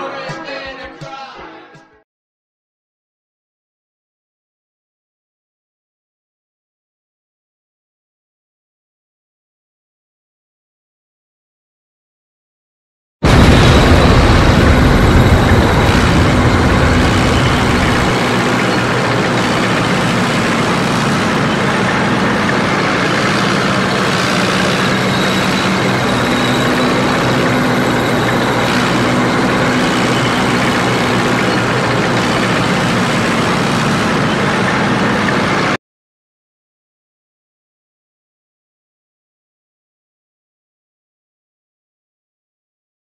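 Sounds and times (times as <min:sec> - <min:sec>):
loud explosion: 0:13.2 - 0:20.0, 0:22.0 - 0:33.1
tank engine running: 0:13.2 - 0:35.8.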